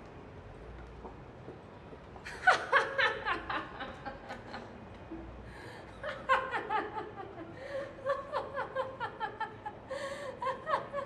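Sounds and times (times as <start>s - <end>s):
woman laughing: 6.0s - 9.8s.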